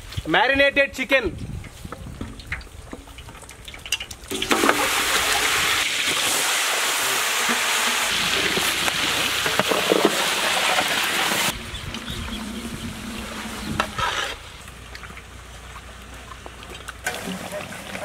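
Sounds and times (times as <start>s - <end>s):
chicken sizzling in hot fat: 3.8s - 14.4s
metal ladle scraping a pot: 12.3s - 14.4s.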